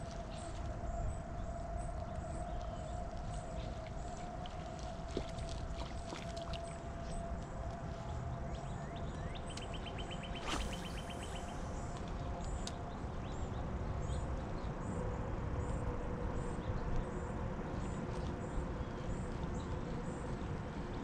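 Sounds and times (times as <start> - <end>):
birds chirping: 9.4 - 11.8.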